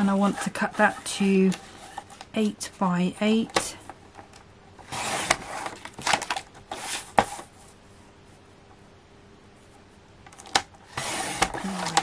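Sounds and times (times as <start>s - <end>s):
card scraping: 4.8s - 7.5s, 10.4s - 12.0s.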